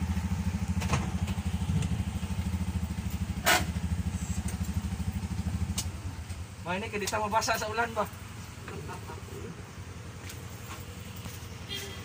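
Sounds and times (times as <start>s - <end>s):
engine putter from inside cab: 0.7s - 2.0s, 3.4s - 4.7s.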